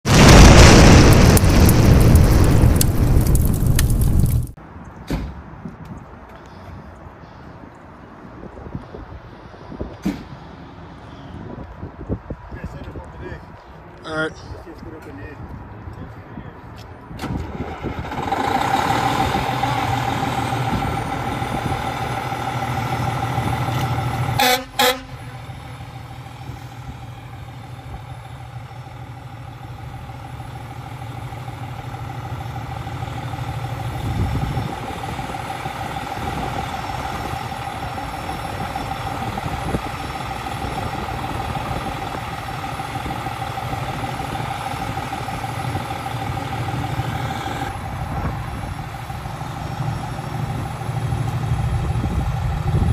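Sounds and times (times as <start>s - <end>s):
fire truck engine idling: 18.1s - 52.9s
loud horn blasts: 24.2s - 25.5s
steady whine: 25.1s - 52.9s.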